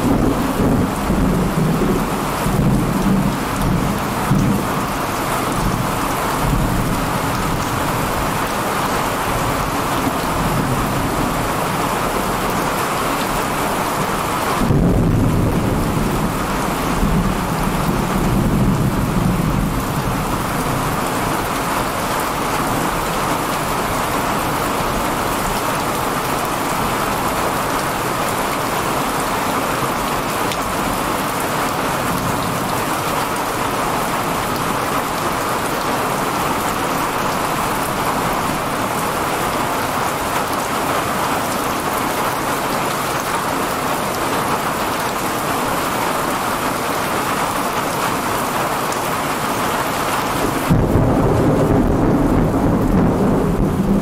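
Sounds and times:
thunder rumbling: 0.0 - 22.0, 50.4 - 54.0
heavy rain pouring: 0.0 - 54.0.

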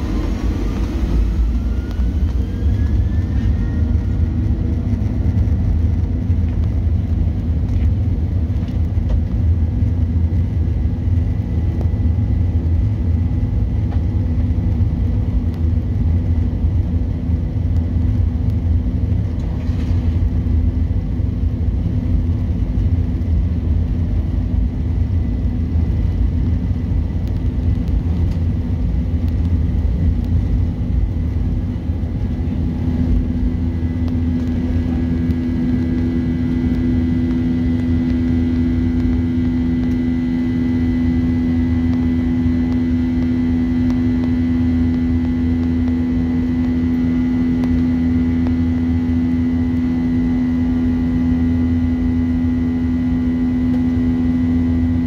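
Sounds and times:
faint high whine: 0.0 - 6.8, 28.0 - 55.0
jet engine hum: 0.0 - 55.0
runway rumble in plane cabin: 0.0 - 55.0.

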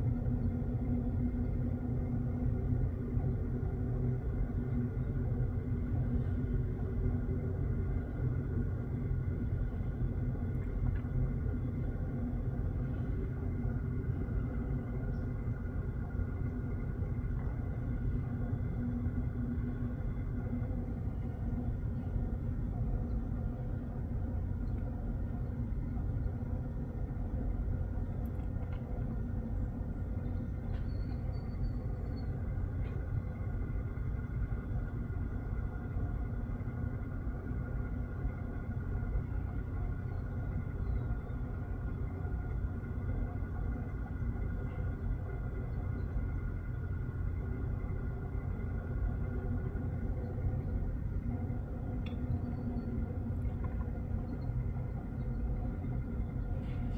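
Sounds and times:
faint hum: 0.0 - 56.9
low background rumble: 0.0 - 56.9
faint high chirp: 30.7 - 32.4.

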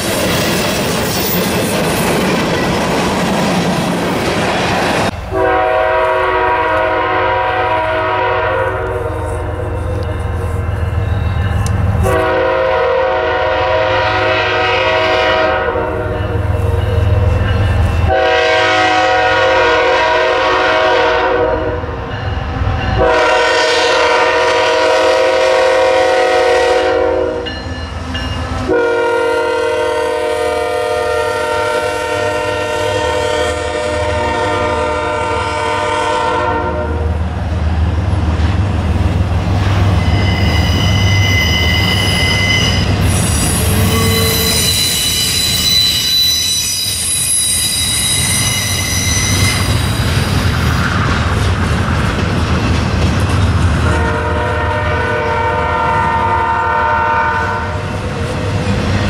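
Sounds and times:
locomotive engines rumbling: 0.0 - 21.1, 21.8 - 59.0
locomotive air horn chord: 5.3 - 10.0, 12.0 - 16.2, 18.1 - 21.9, 23.0 - 27.5, 28.7 - 37.1, 53.8 - 57.8.

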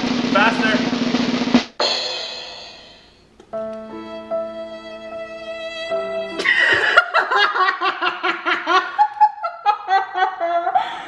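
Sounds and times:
woman and man laughing: 6.4 - 11.0.

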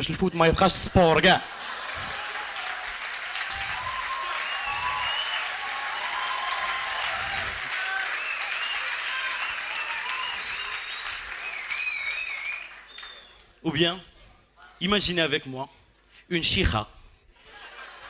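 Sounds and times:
audience applauding: 1.4 - 13.5
crowd whistling: 1.5 - 13.6.

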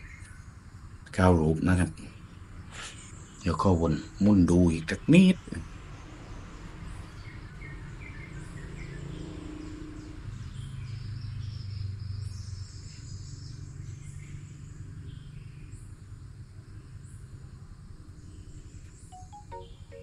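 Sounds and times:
birds chirping: 1.1 - 5.8.

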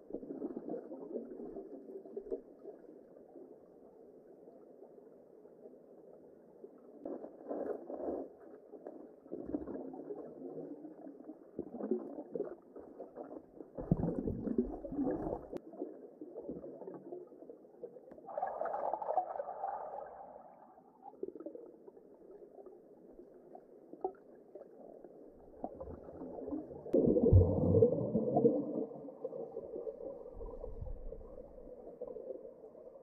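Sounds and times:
muffled underwater river gurgling: 0.0 - 33.0
low underwater rumble: 11.6 - 33.0.

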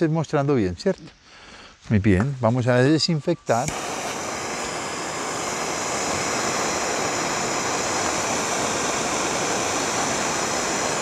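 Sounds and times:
gas torch hissing: 3.4 - 11.0.

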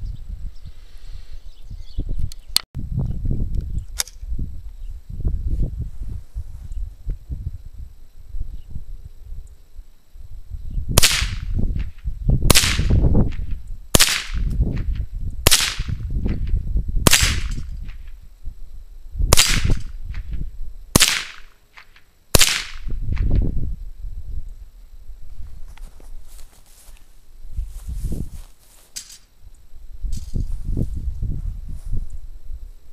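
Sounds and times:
rifle shots: 11.0 - 11.5, 12.5 - 12.9, 14.0 - 14.4, 15.5 - 16.0, 17.1 - 17.6, 19.3 - 19.9, 21.0 - 22.9.

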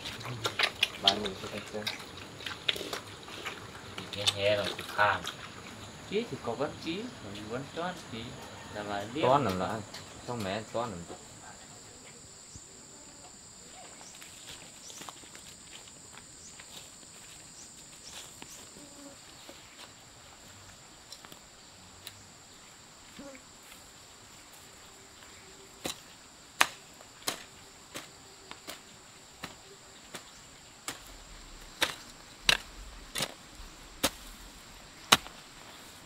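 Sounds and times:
hoes chopping into soil: 25.8 - 35.5.

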